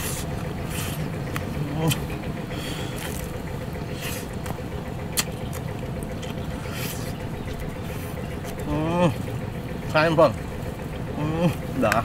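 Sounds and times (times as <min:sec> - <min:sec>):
crunchy chewing: 0:00.0 - 0:09.4
low rumble: 0:00.0 - 0:12.0.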